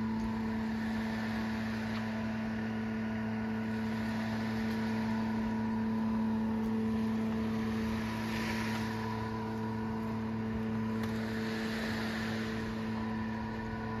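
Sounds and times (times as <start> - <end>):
soft rush of noise: 0.0 - 14.0
steady machine hum: 0.0 - 14.0.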